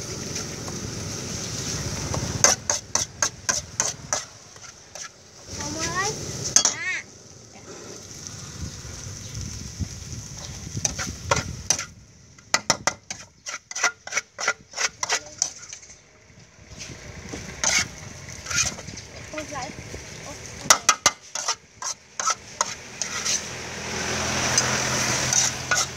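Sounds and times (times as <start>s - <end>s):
faint sizzle: 0.0s - 12.5s
metal spatula scraping a wok: 2.1s - 6.8s, 10.4s - 16.1s, 16.7s - 25.9s.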